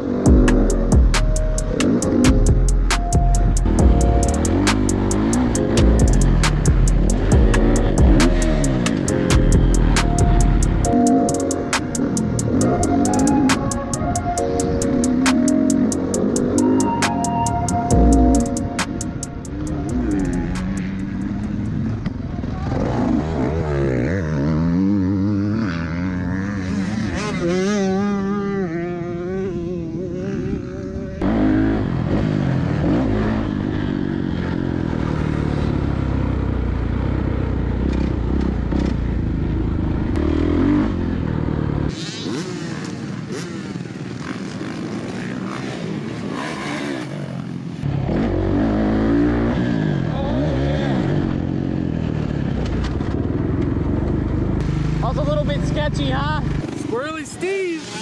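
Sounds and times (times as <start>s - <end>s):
dirt bike engines revving: 0.0s - 58.0s.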